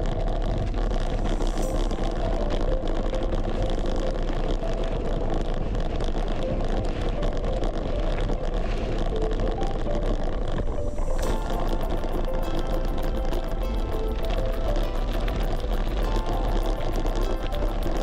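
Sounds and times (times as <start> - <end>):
wind buffeting microphone: 0.0 - 18.0
background music with beat: 1.1 - 5.6, 6.3 - 18.0.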